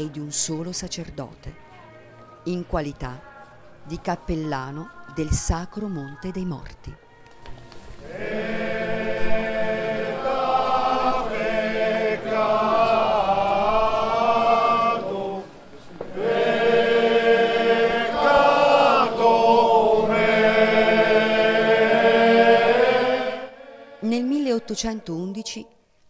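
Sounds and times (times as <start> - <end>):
choir singing long held notes: 7.7 - 25.8.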